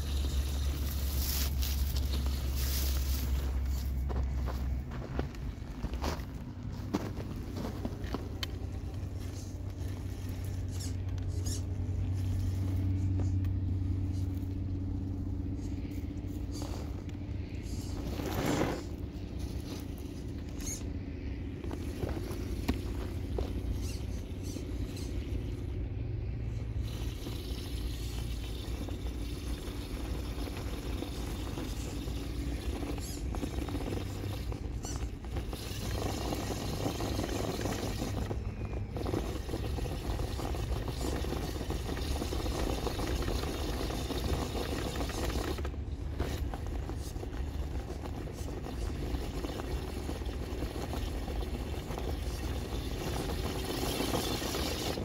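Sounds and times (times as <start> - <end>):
tyres crunching over gravel: 0.0 - 25.8
electric motor and drivetrain whir: 0.0 - 55.0.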